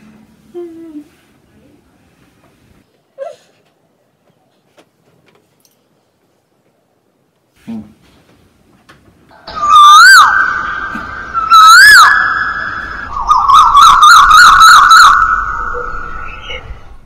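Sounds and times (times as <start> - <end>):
high siren-like wail: 9.4 - 17.0.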